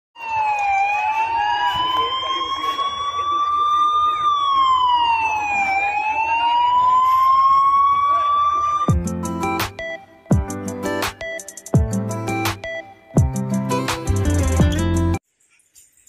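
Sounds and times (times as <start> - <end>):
fire engine siren wailing: 0.2 - 10.2.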